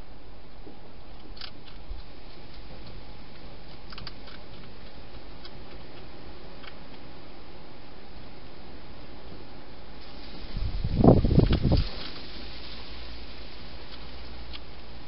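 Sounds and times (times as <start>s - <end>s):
microphone hiss: 0.0s - 15.0s
animal crunching dry food: 1.2s - 7.0s.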